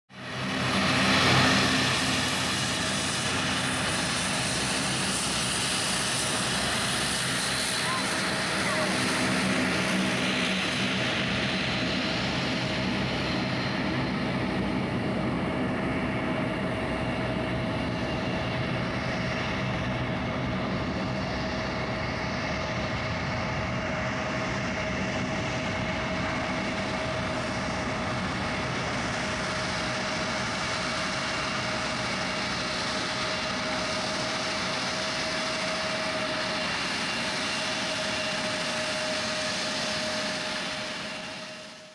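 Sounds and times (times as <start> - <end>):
engine whine: 0.1 - 41.9
jet engines rushing: 0.2 - 41.9.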